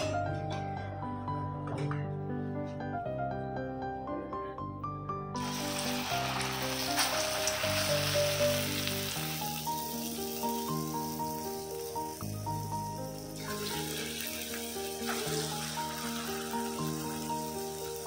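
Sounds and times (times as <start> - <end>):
instrumental background music: 0.0 - 18.0
batter sizzling in hot oil: 5.4 - 18.0.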